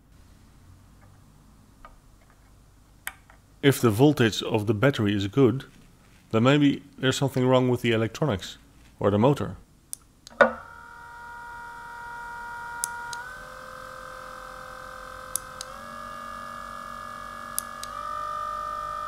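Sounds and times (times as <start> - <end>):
electric motor whine: 10.6 - 19.0.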